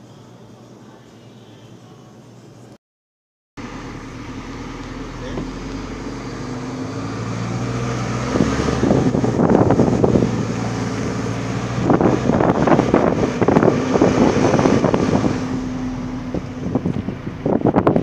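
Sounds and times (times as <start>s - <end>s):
rough rushing and rattling: 3.6s - 18.0s
vehicle engine humming: 3.6s - 18.0s.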